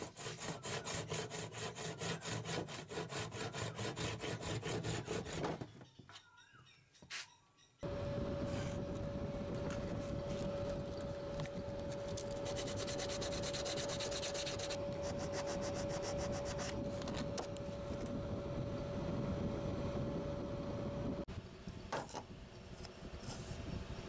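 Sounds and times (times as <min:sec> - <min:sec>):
sandpaper scraping on wood: 0:00.0 - 0:05.6, 0:11.9 - 0:16.8
steady hum: 0:07.8 - 0:21.9.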